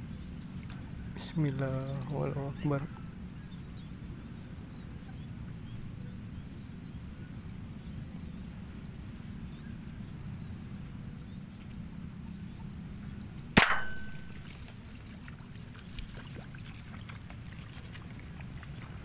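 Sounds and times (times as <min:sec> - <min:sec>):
low background rumble: 0:00.0 - 0:19.0
air rifle shot: 0:13.6 - 0:14.6.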